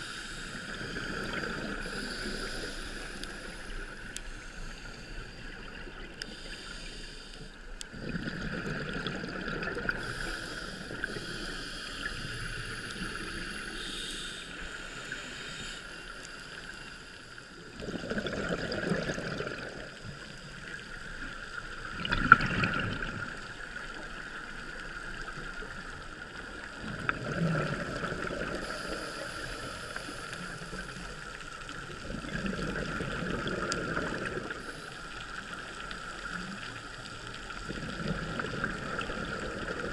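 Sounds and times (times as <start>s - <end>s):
exhaled bubbles underwater: 0.0s - 3.9s, 7.9s - 14.0s, 17.7s - 39.9s
steady high hum: 0.0s - 8.0s, 9.9s - 17.7s.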